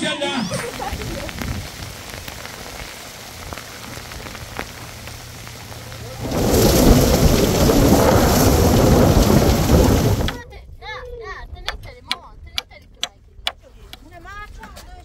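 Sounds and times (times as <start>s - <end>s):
rain falling: 0.5s - 10.4s
thunder rumble: 0.6s - 10.4s.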